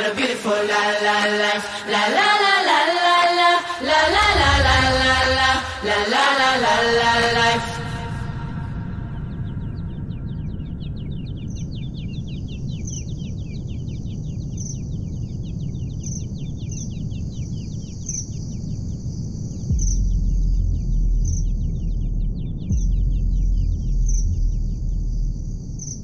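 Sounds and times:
birds chirping: 0.0 - 18.8
low rumble: 3.6 - 17.8, 18.5 - 26.0
deep bass boom: 3.9 - 7.1, 19.7 - 26.0
high insect trill: 23.9 - 26.0.

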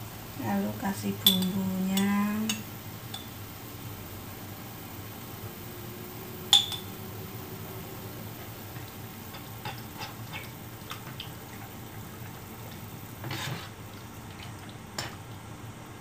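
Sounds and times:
frying sizzle: 0.0 - 16.0
spoon scraping glass jar and wok: 13.2 - 13.7.

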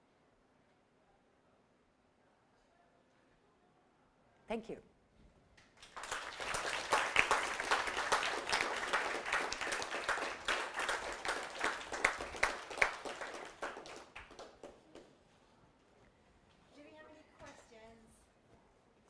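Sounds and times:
audience applauding: 5.8 - 15.1.

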